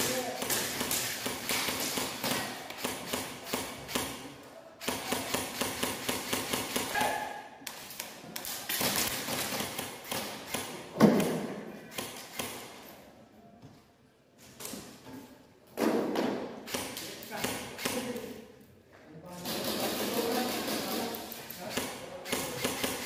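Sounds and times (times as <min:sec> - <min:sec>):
airsoft guns firing: 0:00.0 - 0:12.7, 0:19.4 - 0:23.0.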